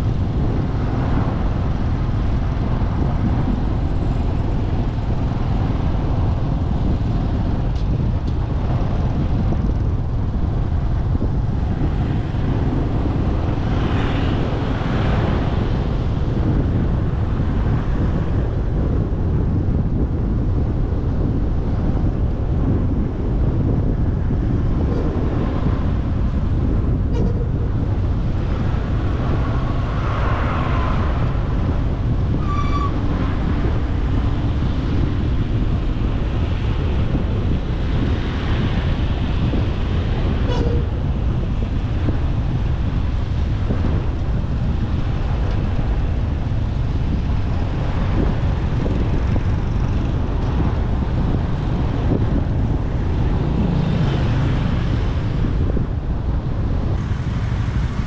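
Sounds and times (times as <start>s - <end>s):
road traffic rumble: 0.0s - 58.0s
wind on microphone: 0.0s - 58.0s
vehicle horn beeps: 32.4s - 33.0s, 40.5s - 40.9s.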